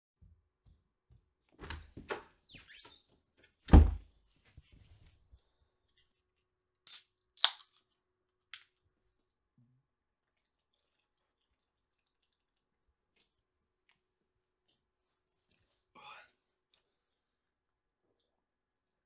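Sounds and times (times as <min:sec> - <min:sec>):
heavy thunk: 0:03.7 - 0:04.0.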